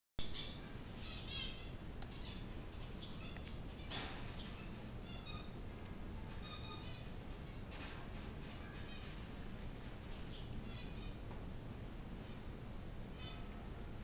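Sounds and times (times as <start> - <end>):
short high chirping calls: 0.2 - 5.6, 6.4 - 7.1.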